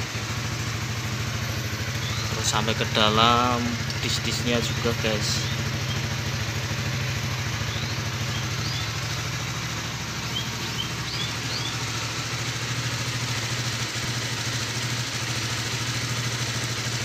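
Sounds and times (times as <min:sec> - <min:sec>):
motorcycle engine idling: 0:00.0 - 0:17.0
high rising chirps: 0:10.2 - 0:11.8.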